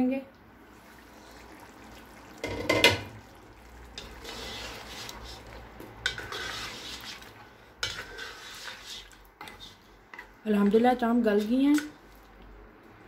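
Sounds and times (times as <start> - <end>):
spoon stirring thick curry: 1.2 - 10.8.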